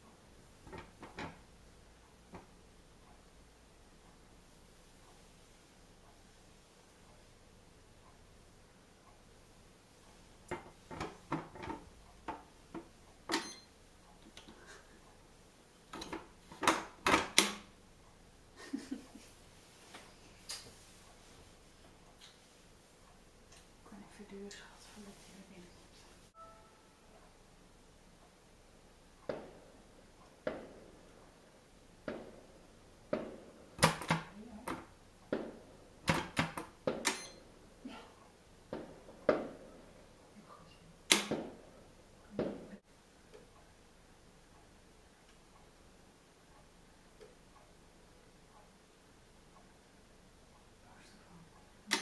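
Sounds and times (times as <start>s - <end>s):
sharp knocks and bangs: 29.2s - 37.2s.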